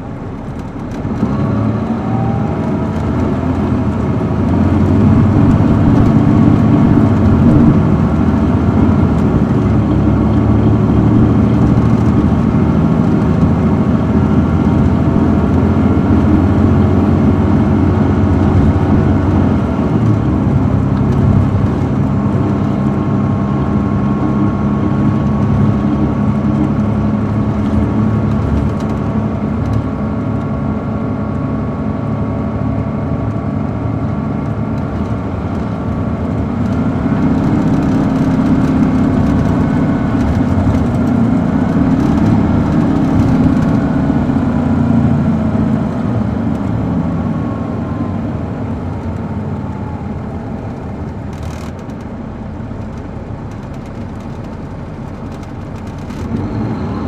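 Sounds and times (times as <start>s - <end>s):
diesel coach engine: 0.0s - 57.0s.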